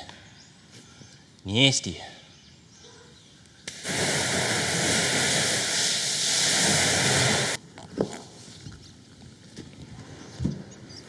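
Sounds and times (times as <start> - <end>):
water spray hissing and splashing: 3.6 - 7.6.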